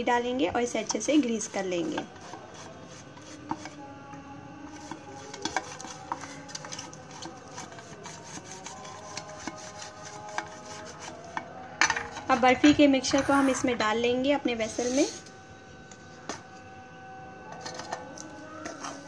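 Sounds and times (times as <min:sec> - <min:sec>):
soft rubbing in a vessel: 0:01.4 - 0:03.9, 0:04.6 - 0:11.6, 0:14.6 - 0:15.4, 0:17.4 - 0:19.0.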